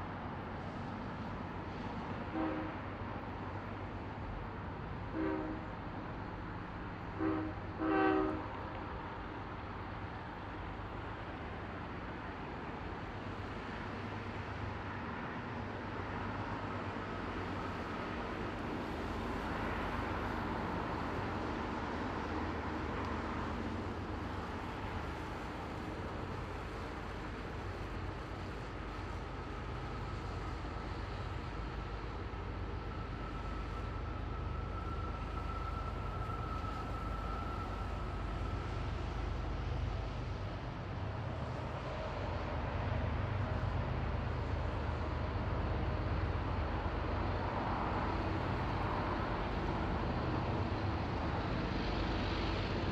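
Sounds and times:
diesel locomotives rumbling: 0:00.0 - 0:52.9
faint high whine: 0:19.1 - 0:40.6.

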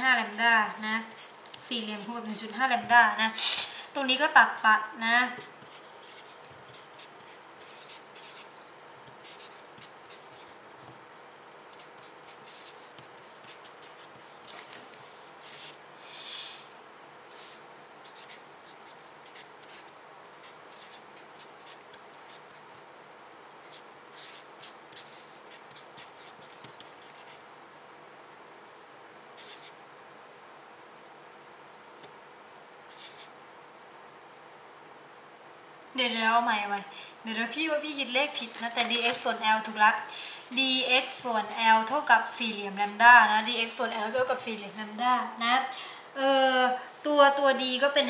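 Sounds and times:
marker writing on paper: 0:00.0 - 0:10.6, 0:11.7 - 0:14.8, 0:15.4 - 0:15.8, 0:18.0 - 0:22.7, 0:23.6 - 0:27.4, 0:29.4 - 0:29.7, 0:32.9 - 0:33.3, 0:38.2 - 0:44.0
faint steady hum: 0:00.0 - 0:48.0.

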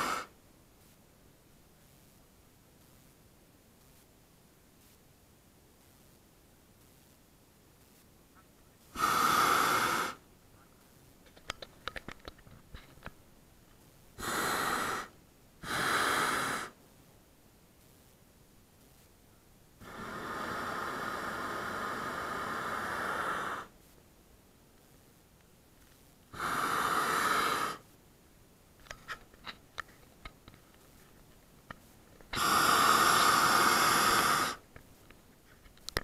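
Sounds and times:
propane burner blasts: 0:00.0 - 0:00.3, 0:08.9 - 0:10.2, 0:14.2 - 0:16.8, 0:19.8 - 0:23.7, 0:26.3 - 0:27.8, 0:32.3 - 0:34.6.

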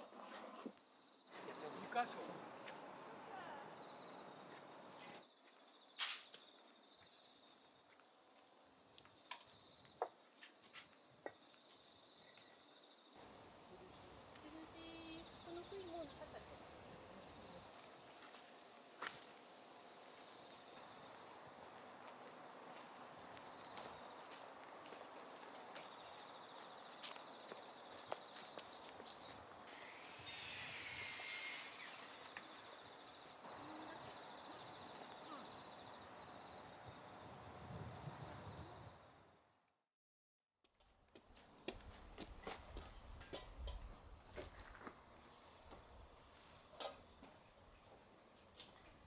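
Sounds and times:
insects trilling: 0:00.0 - 0:39.3
rustle: 0:04.5 - 0:06.6.

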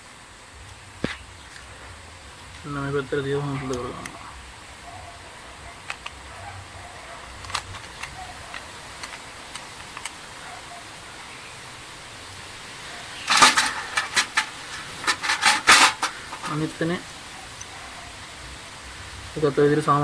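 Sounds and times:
screwdriver clattering in metal tray: 0:13.2 - 0:16.6.

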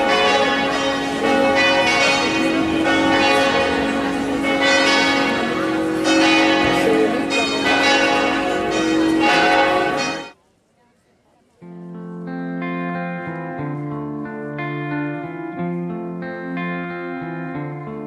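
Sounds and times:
church bells pealing: 0:00.0 - 0:10.4.

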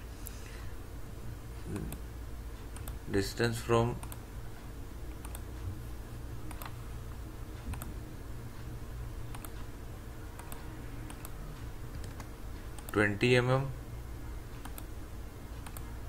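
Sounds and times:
steady low hum: 0:00.0 - 0:16.0
computer mouse clicks: 0:02.7 - 0:03.0, 0:05.2 - 0:05.4, 0:06.5 - 0:06.8, 0:07.7 - 0:07.9, 0:09.3 - 0:09.6, 0:10.4 - 0:13.0, 0:14.6 - 0:14.9, 0:15.6 - 0:15.9.

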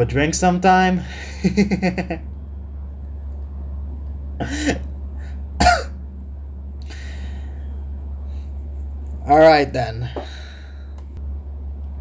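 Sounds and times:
low electrical hum: 0:00.0 - 0:12.0
man coughing: 0:04.4 - 0:04.9, 0:05.6 - 0:06.0.

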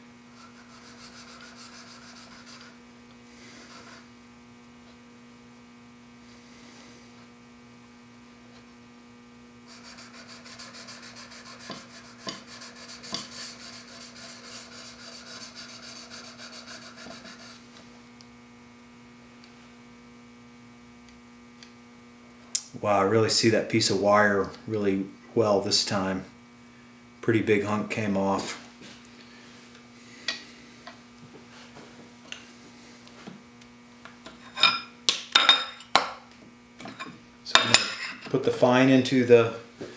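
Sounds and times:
steady electrical hum: 0:00.0 - 0:39.9
chisel scraping on sharpening plate: 0:09.7 - 0:17.6.

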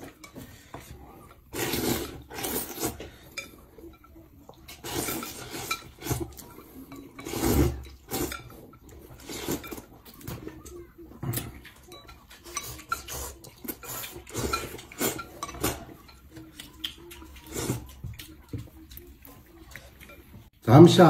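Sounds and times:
noodles slurped: 0:01.4 - 0:03.1, 0:04.7 - 0:09.9
chopsticks clinking on bowl: 0:02.4 - 0:20.3.

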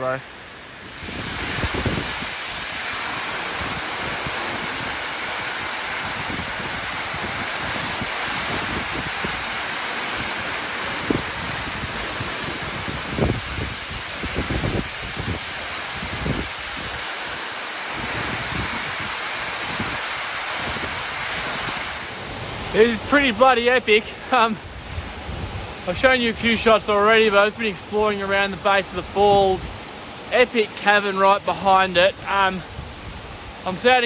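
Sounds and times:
waterfall rushing: 0:00.0 - 0:34.0
wind buffeting microphone: 0:00.8 - 0:17.0, 0:17.9 - 0:22.7, 0:24.7 - 0:25.8.

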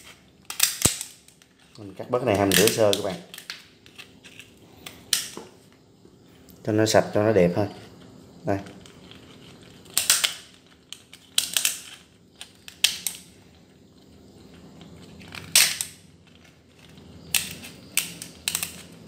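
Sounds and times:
crab shell cracking snips: 0:00.5 - 0:01.4, 0:09.8 - 0:13.2, 0:15.3 - 0:16.0.

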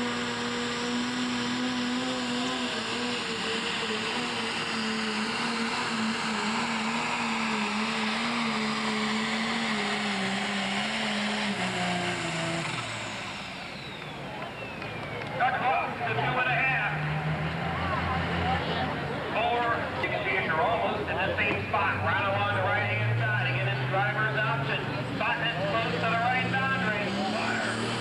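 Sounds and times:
diesel tractor engine under load: 0:00.0 - 0:28.0.

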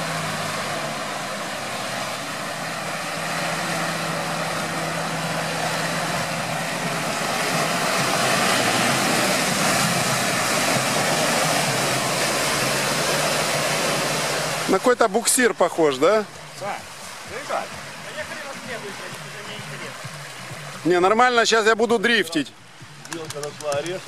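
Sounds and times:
engine working hard: 0:00.0 - 0:24.0
mud and water splashing: 0:00.0 - 0:24.0.

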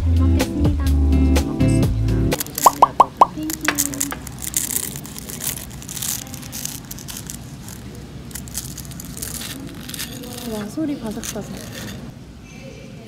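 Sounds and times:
pastry crackling under cutlery: 0:02.4 - 0:12.1.

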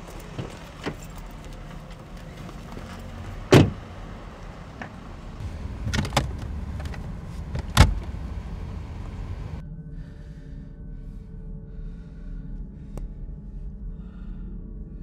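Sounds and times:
steady low rumble: 0:00.0 - 0:15.0
car door shutting: 0:00.1 - 0:01.4, 0:02.2 - 0:09.6
glovebox clicking and knocking: 0:05.7 - 0:08.2.

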